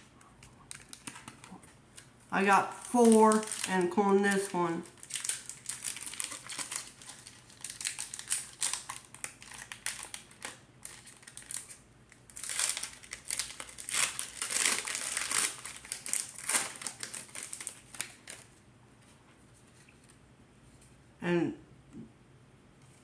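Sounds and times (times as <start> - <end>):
crinkling plastic wrapper: 0.4 - 18.6.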